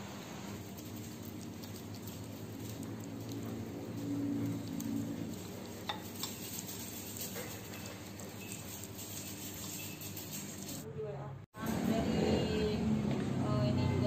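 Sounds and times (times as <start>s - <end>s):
cat chewing and licking food: 0.5s - 10.8s.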